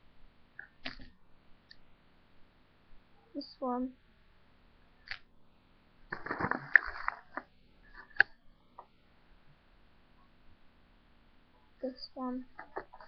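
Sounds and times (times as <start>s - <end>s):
plastic bag rustling: 6.1s - 7.4s.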